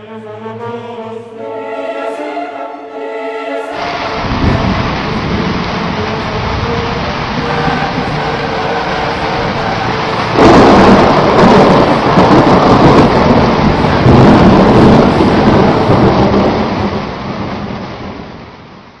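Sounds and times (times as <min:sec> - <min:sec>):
rumbling thunder: 0:03.8 - 0:18.9
rain hiss: 0:03.8 - 0:19.0.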